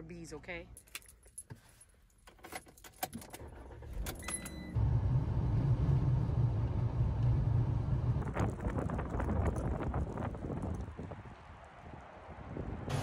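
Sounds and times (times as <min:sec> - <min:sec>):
keys jingling: 0:00.7 - 0:03.4
van engine and tyres rumbling: 0:03.4 - 0:11.7, 0:12.7 - 0:13.0.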